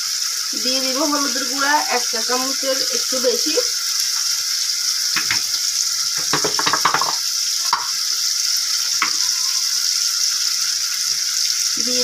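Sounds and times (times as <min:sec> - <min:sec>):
onion and shrimp sizzling in oil: 0:00.0 - 0:12.0.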